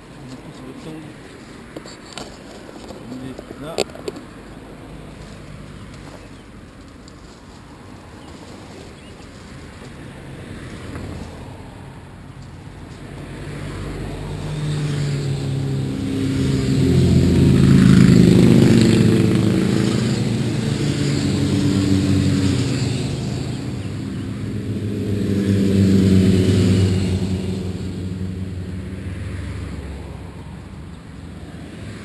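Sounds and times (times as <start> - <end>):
motor engine humming: 12.4 - 31.0.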